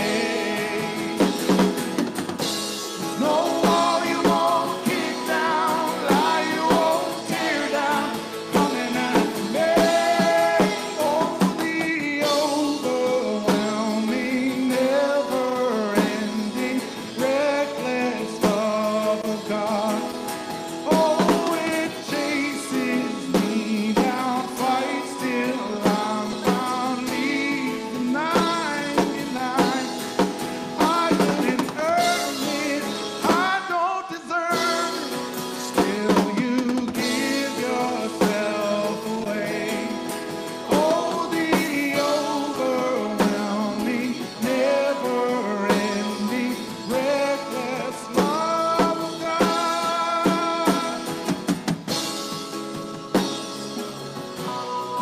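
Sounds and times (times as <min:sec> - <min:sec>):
male and female voices singing: 0:00.0 - 0:02.0, 0:02.8 - 0:51.7
drums: 0:00.0 - 0:55.0
strummed acoustic guitar: 0:00.0 - 0:55.0.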